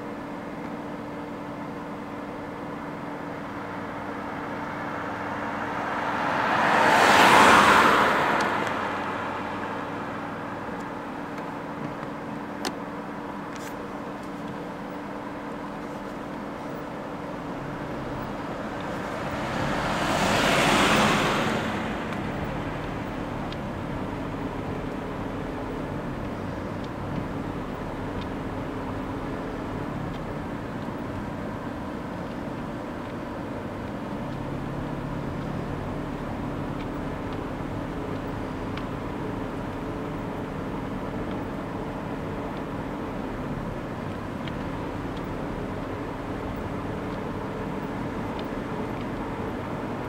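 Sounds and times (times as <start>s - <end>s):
cars passing by: 0.0s - 50.0s
steady outdoor hum: 0.0s - 50.0s.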